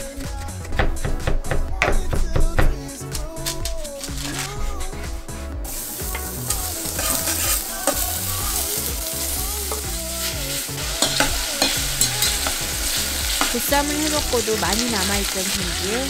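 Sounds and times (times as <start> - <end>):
meat sizzling in a pot: 5.6 - 16.0
metal tongs clicking on pot: 11.0 - 12.6, 13.3 - 13.9.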